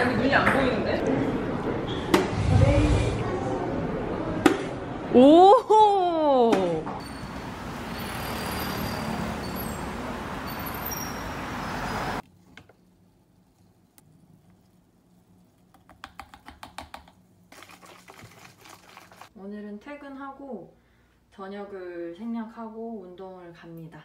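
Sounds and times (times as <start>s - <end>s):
traffic noise: 6.9s - 12.2s
plastic bottle being shaken: 17.5s - 19.3s.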